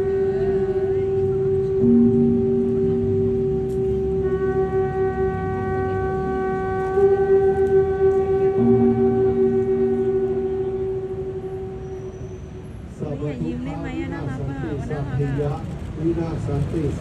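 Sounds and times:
conch shell trumpet note: 0.0 - 13.1
lower second tone: 0.0 - 13.4.

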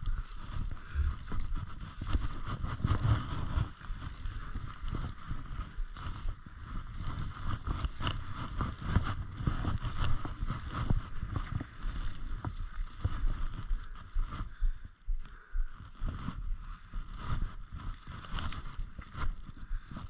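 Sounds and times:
snowshoe footsteps crunching in snow: 0.0 - 14.6.

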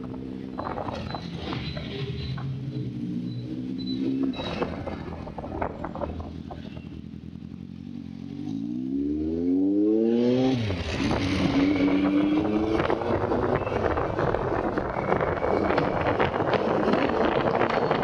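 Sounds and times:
motorcycle engine revving: 0.0 - 18.0
wind on microphone: 10.6 - 18.0.

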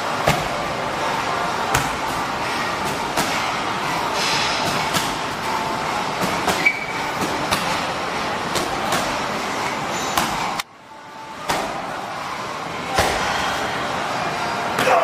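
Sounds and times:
rushing background noise: 0.0 - 15.0
punches and kicks smacking pads: 0.2 - 0.7, 1.6 - 3.6, 4.6 - 5.4, 6.1 - 7.9, 8.5 - 9.3, 10.1 - 10.6, 11.4 - 11.9, 12.8 - 13.4.

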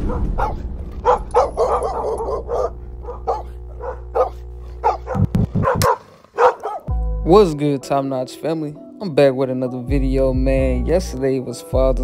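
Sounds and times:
low hum: 0.0 - 6.1
dog barking: 0.0 - 6.9.

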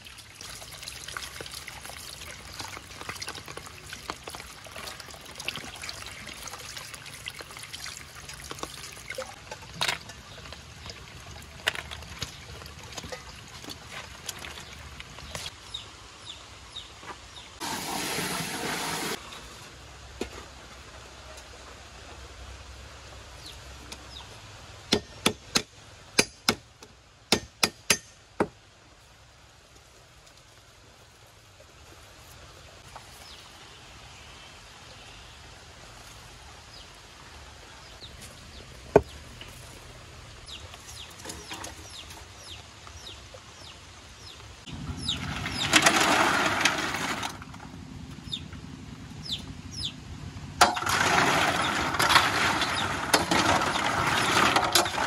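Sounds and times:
hissing in hot wok: 17.6 - 19.2.

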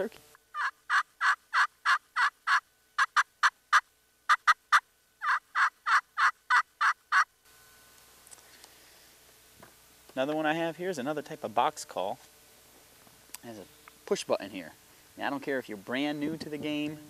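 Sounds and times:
friction turkey call scratching: 0.5 - 7.3.

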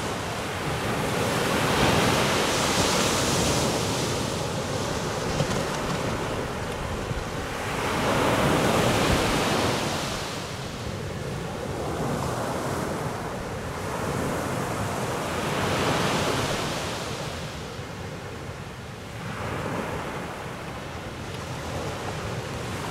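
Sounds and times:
ocean surf breaking: 0.0 - 10.7.

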